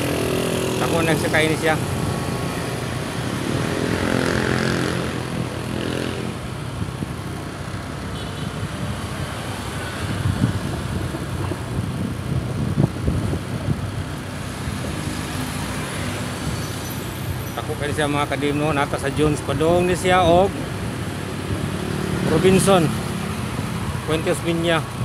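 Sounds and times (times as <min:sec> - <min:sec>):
motorcycle engine running: 0:00.0 - 0:06.9.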